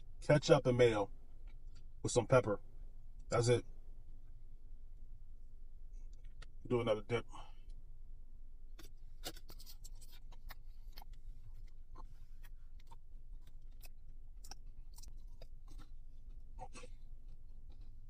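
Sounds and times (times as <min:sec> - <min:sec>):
close chewing with crunches: 0:01.3 - 0:02.0, 0:05.9 - 0:06.6, 0:08.6 - 0:18.0
wet mouth clicks: 0:08.8 - 0:18.0.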